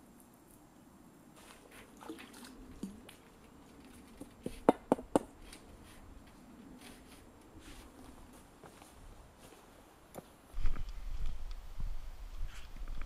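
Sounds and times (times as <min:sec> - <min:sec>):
water sloshing and dripping: 0:01.3 - 0:04.4.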